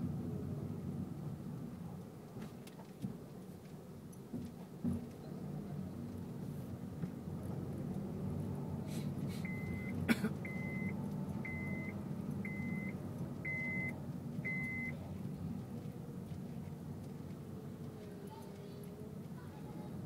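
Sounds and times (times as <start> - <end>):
car engine and road rumble: 0.0 - 20.0
short high electronic beeps: 13.5 - 13.9.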